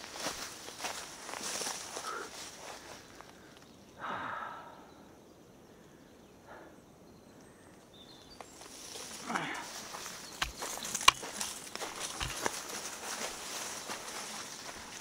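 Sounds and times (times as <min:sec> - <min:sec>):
faint outdoor hiss: 0:00.0 - 0:15.0
person breathing out heavily: 0:02.0 - 0:05.0, 0:09.2 - 0:09.8.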